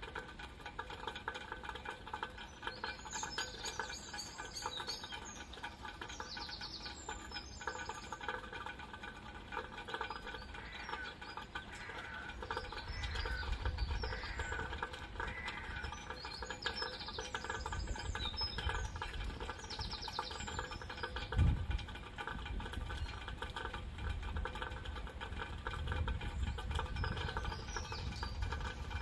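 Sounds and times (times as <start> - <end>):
rain pattering: 0.0 - 29.0
birds chirping and singing: 2.5 - 8.2, 10.0 - 21.4, 26.4 - 29.0.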